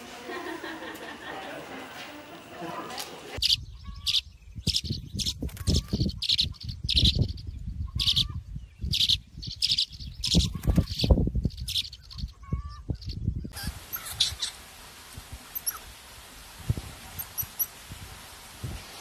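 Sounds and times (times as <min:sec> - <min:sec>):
nestling chirping: 0:02.3 - 0:14.6, 0:15.4 - 0:15.9, 0:17.1 - 0:17.8.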